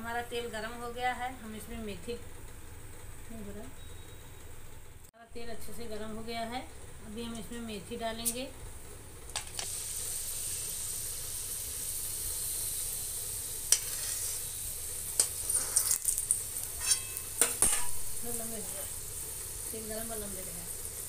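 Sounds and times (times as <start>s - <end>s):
seeds sizzling in hot oil: 7.2s - 21.0s
spoon scraping a metal pan: 13.7s - 14.5s, 15.2s - 18.0s.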